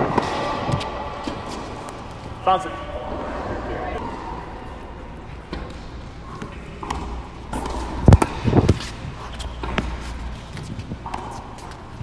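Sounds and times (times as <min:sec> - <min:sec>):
tennis ball hitting racket: 0:00.0 - 0:01.7, 0:05.5 - 0:10.2.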